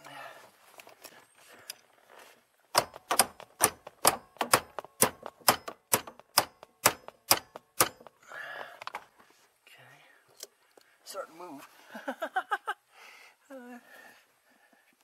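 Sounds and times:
hammer striking metal shaft: 0:02.8 - 0:08.2.

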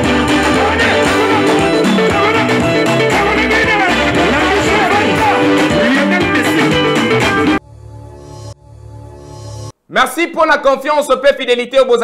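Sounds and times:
person singing: 0:00.0 - 0:07.5
dance music with guitar bass drums: 0:00.0 - 0:07.6.

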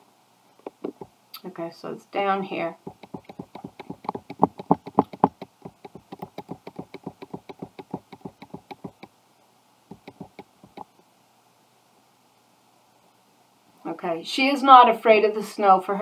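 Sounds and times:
rapid mouse clicking: 0:00.6 - 0:01.1, 0:02.8 - 0:09.1, 0:09.9 - 0:11.0.

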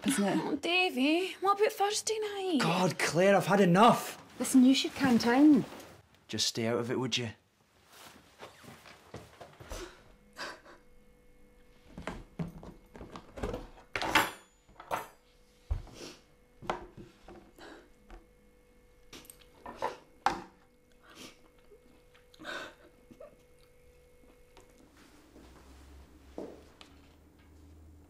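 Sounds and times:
faint steady hum: 0:00.0 - 0:28.0
woman sobbing: 0:09.7 - 0:11.0, 0:22.4 - 0:23.5.

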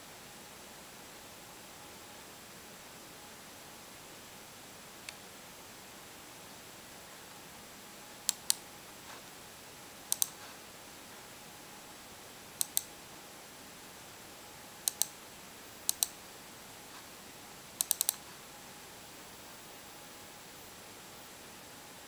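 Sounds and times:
computer mouse double-clicks: 0:08.3 - 0:08.6, 0:10.1 - 0:10.4, 0:12.6 - 0:12.9, 0:14.8 - 0:15.2, 0:15.9 - 0:16.2, 0:17.8 - 0:18.2.

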